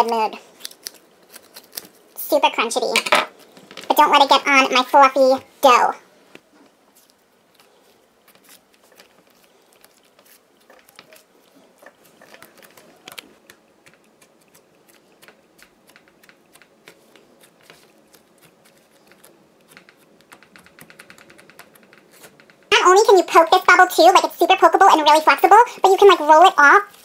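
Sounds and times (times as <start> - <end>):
squishy dough crackling: 0.0 - 5.8, 6.4 - 20.6.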